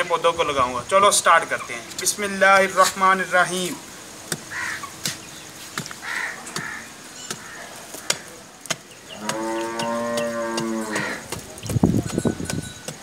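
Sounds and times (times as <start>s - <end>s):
cow mooing: 9.2s - 11.2s.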